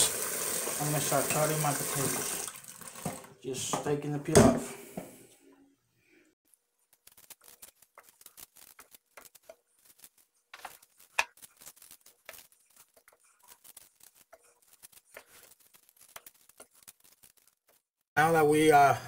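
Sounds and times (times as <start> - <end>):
knife peeling potato: 6.9 - 17.8.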